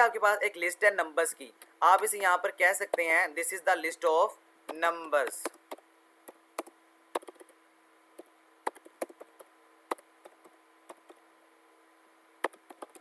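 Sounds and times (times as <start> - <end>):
faint steady hum: 0.0 - 13.0
keyboard typing: 5.2 - 7.6, 8.2 - 11.2, 12.4 - 13.0.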